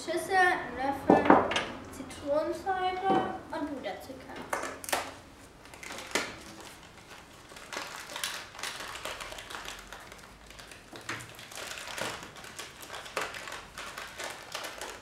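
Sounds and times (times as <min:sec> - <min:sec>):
paper packet crinkling and tearing: 0:04.8 - 0:15.0.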